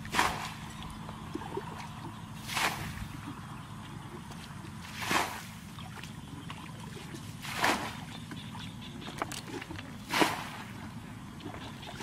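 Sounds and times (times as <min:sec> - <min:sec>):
low steady hum: 0:00.0 - 0:12.0
water splashing in a ditch: 0:00.0 - 0:12.0.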